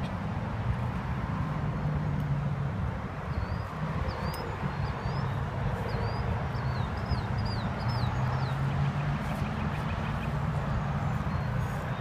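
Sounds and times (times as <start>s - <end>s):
road traffic rumble: 0.0s - 12.0s
small birds chirping: 3.2s - 12.0s.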